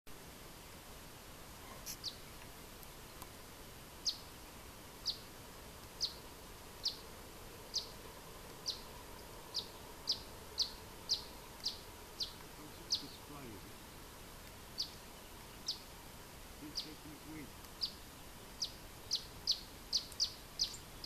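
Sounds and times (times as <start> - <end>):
bird sharp call notes: 16.6 - 18.0.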